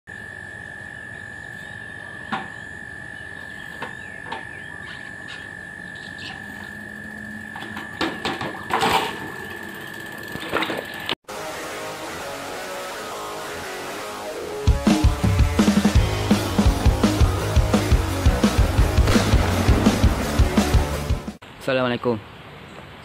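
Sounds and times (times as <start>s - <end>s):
high-pitched background whine: 0.1s - 14.6s.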